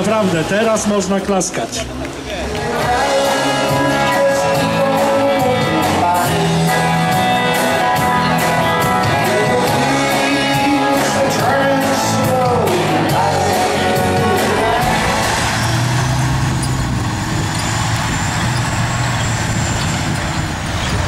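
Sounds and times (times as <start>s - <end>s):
song with singing over a beat: 2.5s - 16.0s.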